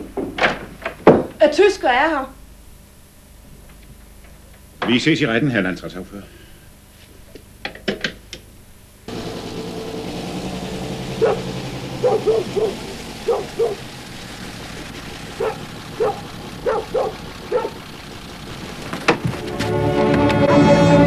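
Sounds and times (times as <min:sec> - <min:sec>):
car engine running: 0:09.1 - 0:20.7
dog barking: 0:11.0 - 0:13.9, 0:15.4 - 0:17.8.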